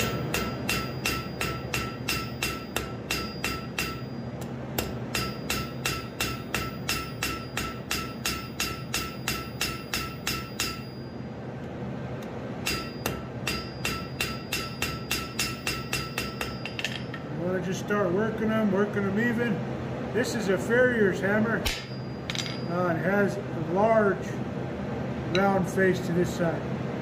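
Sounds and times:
hammer striking steel on anvil: 0.0s - 11.2s, 12.6s - 17.4s, 21.6s - 22.9s, 25.4s - 25.6s.

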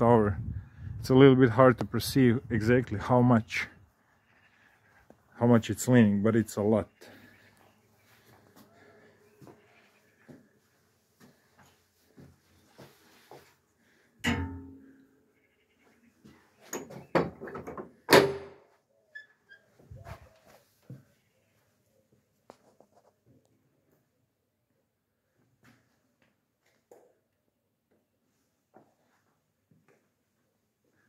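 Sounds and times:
metallic latch clank: 14.2s - 14.8s.

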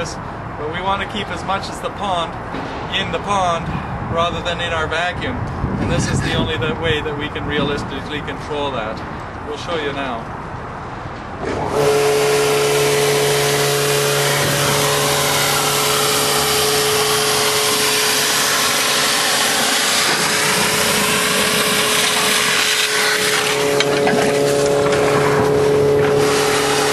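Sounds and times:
vacuum machine whine: 14.4s - 26.9s
vacuum suction rushing: 14.4s - 26.9s.

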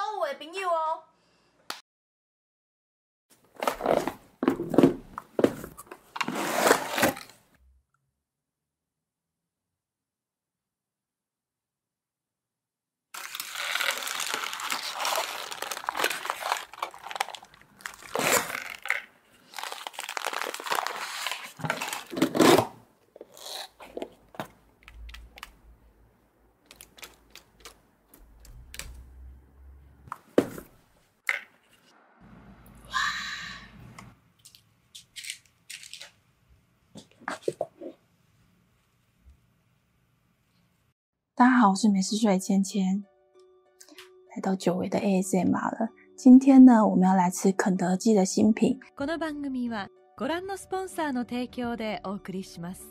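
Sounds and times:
cardboard boxes crinkling and rustling: 3.5s - 7.4s, 13.2s - 24.6s.

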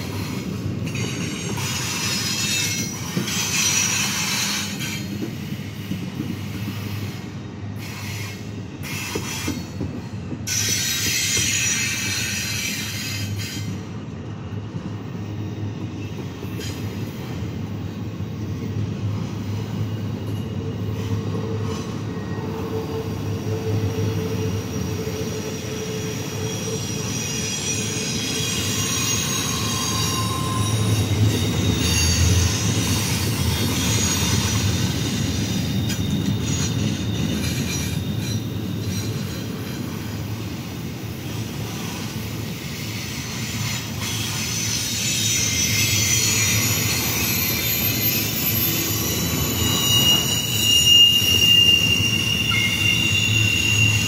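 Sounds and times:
train wheels rumbling on rails: 0.0s - 54.0s
wheels squealing: 19.8s - 40.2s, 41.2s - 54.0s.

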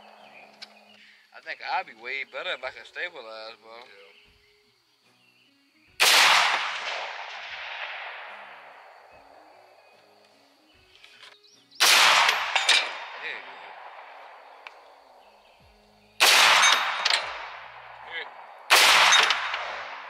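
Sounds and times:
rifle shots with echoes: 6.0s - 9.6s, 11.8s - 14.9s, 16.2s - 20.0s.

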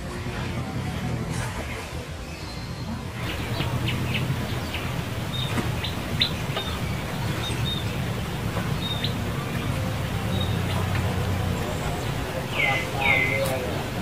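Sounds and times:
steady low hum: 3.2s - 13.0s
small birds chirping: 3.2s - 14.0s.

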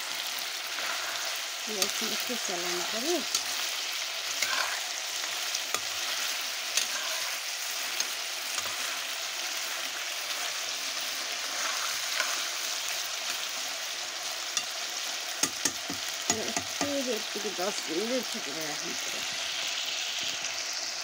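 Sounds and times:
curry sizzling in a pan: 0.0s - 21.0s
metal spoon clicking on pan: 3.2s - 3.6s, 14.6s - 14.8s, 15.4s - 17.0s.

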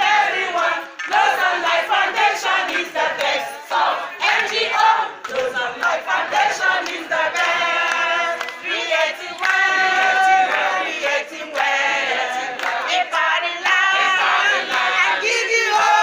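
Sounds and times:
women singing together: 0.0s - 16.0s.

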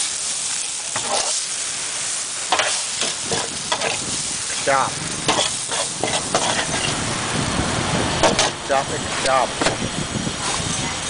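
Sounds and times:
noodles sizzling in a wok: 0.0s - 11.0s
utensil scraping a wok: 0.5s - 1.6s, 2.5s - 7.1s, 10.4s - 10.8s.

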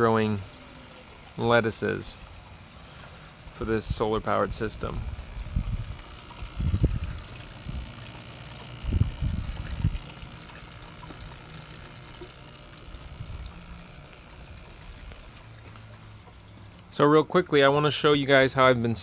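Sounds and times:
water trickling through pipes: 0.0s - 17.7s
wind bumps on microphone: 6.6s - 7.8s.

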